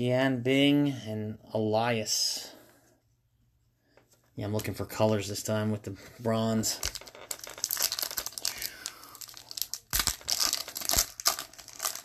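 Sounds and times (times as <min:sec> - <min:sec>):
foil wrapper crinkling and tearing: 0:06.8 - 0:12.0.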